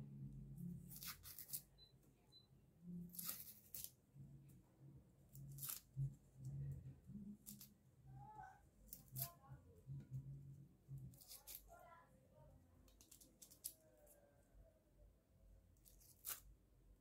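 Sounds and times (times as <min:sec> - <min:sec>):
knife peeling onion skin: 0:00.8 - 0:01.7, 0:03.0 - 0:04.0, 0:05.3 - 0:06.0, 0:07.4 - 0:07.8, 0:08.9 - 0:09.4, 0:11.1 - 0:11.7, 0:12.9 - 0:14.1, 0:15.8 - 0:16.6.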